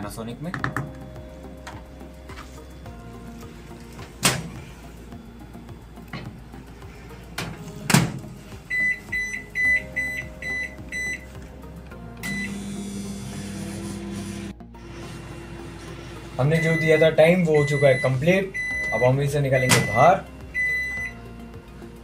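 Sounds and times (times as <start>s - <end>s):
microwave humming: 3.3s - 22.0s
microwave door shutting: 4.1s - 4.7s, 7.4s - 8.3s, 19.6s - 20.0s
keypad beeps: 8.7s - 11.2s, 12.2s - 12.6s, 16.6s - 21.2s.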